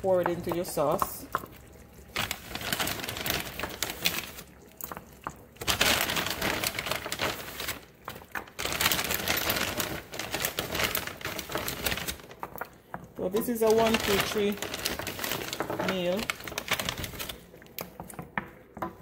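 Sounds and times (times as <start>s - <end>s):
plastic bag crinkling: 0.0s - 18.4s.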